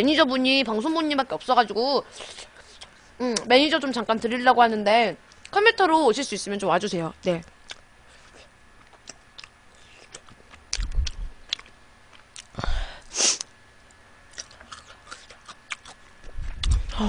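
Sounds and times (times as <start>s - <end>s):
close chewing with mouth clicks: 7.6s - 12.6s, 14.3s - 16.9s.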